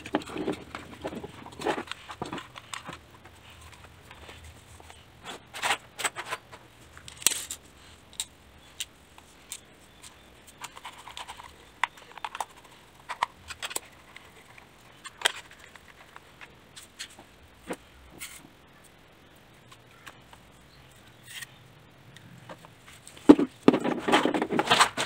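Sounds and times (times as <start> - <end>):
plastic toy car clicks and rattles: 5.5 - 8.9, 9.5 - 17.2, 23.3 - 25.0.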